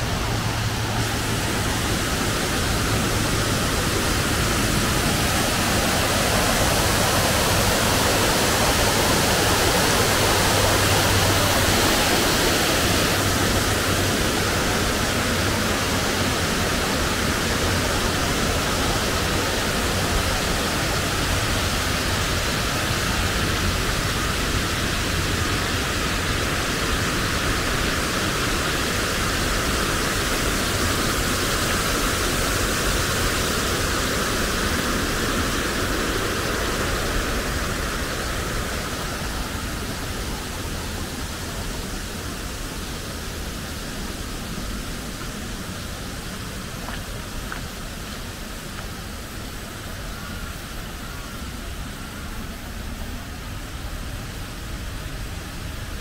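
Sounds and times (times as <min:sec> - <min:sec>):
stream rushing: 0:00.0 - 0:56.0.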